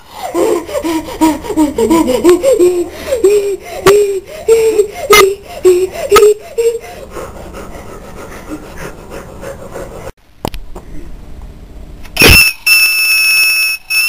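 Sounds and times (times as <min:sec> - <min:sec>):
boy making whiny noises: 0:00.1 - 0:07.4.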